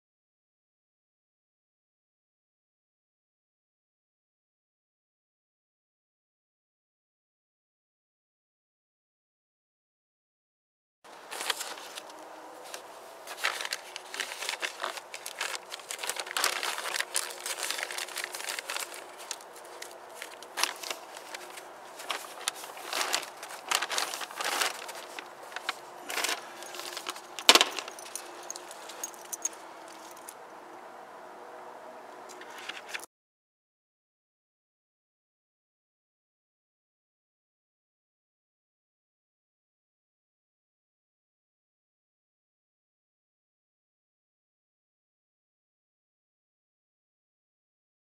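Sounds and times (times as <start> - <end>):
plastic sheeting crinkling: 11.1 - 29.4
metal wire clinking and scraping: 11.2 - 30.4, 32.3 - 33.1.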